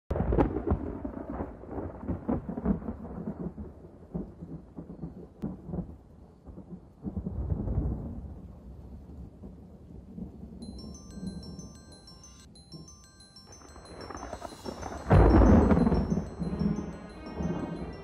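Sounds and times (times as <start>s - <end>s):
thunder rumbling with crackles: 0.1s - 10.6s, 14.0s - 16.7s.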